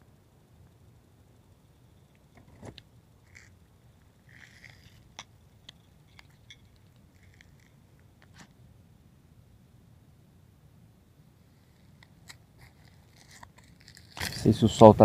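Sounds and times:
camera handling clicks and rustles: 4.3 - 8.5, 12.0 - 14.5.

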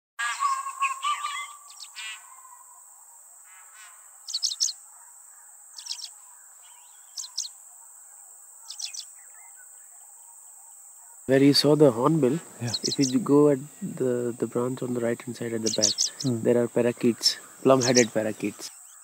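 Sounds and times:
birds calling: 0.2 - 19.0
high-pitched insect drone: 5.8 - 7.8, 8.6 - 19.0.

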